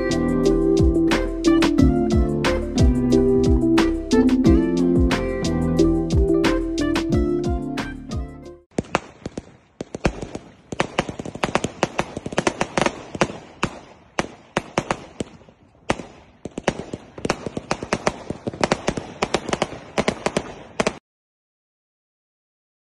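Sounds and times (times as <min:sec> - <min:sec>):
fireworks bangs and crackles: 0:08.7 - 0:21.0.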